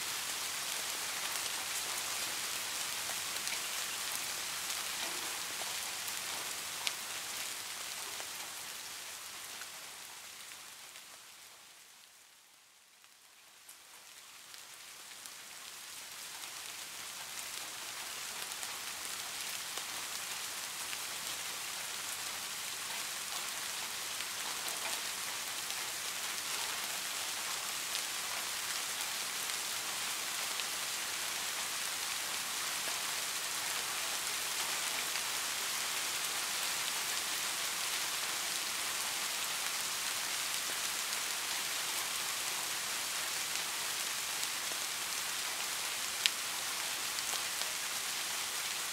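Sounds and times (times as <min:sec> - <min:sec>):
steady rain hiss: 0:00.0 - 0:48.9.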